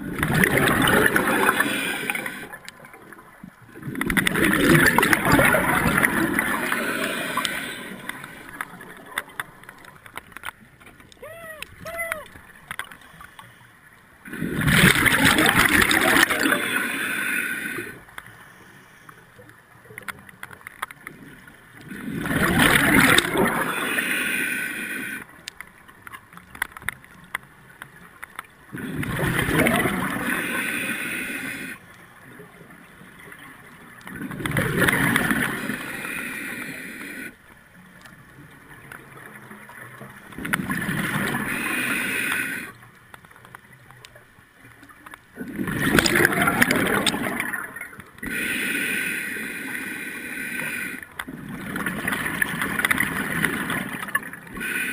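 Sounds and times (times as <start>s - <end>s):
diver exhaling bubbles underwater: 0.0s - 2.7s, 3.8s - 9.1s, 14.3s - 18.0s, 21.8s - 23.9s, 28.7s - 30.6s, 45.4s - 48.5s.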